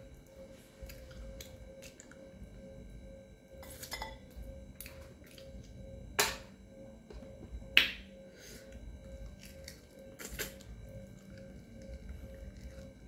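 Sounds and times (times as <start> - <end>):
chewing and mouth clicks: 0.8 - 2.2, 9.3 - 12.9.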